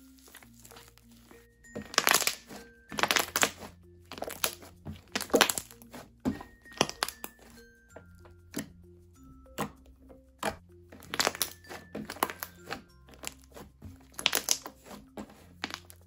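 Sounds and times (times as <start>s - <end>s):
slime squishing by hand: 0.0s - 8.8s, 9.5s - 16.0s
quiet background music: 0.0s - 16.0s.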